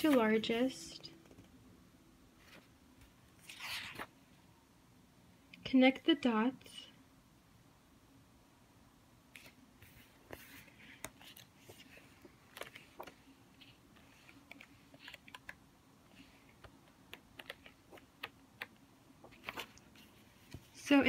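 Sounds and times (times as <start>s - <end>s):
paper pages rustling: 0.0s - 0.5s, 3.4s - 4.1s, 9.4s - 20.8s.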